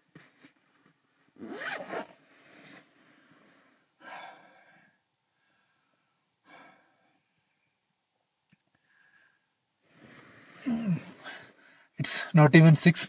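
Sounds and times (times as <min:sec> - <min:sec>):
sleeping bag rustling: 0:00.0 - 0:03.8
loud breath: 0:03.1 - 0:07.2, 0:08.8 - 0:11.9
person sighing: 0:10.6 - 0:11.5.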